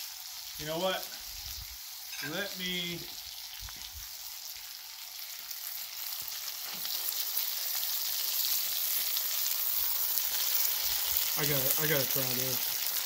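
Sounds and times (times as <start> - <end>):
meat sizzling on a griddle: 0.0 - 13.0.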